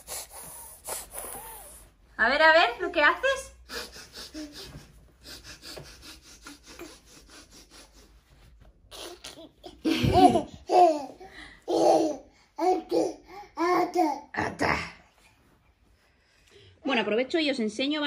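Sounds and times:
person laughing: 9.0 - 10.6.

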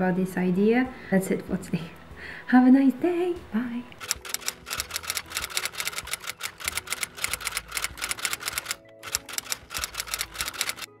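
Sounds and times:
typewriter key clacks: 4.0 - 10.9.

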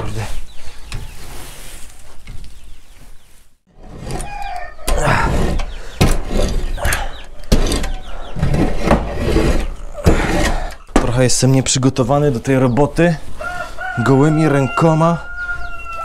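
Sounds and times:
bedding rustling and scraping: 0.0 - 13.8
chickens clucking: 6.7 - 8.6.

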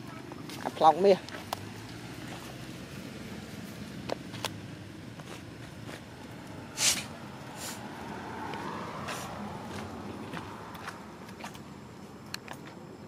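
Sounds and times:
leaves crackling: 0.0 - 11.6.

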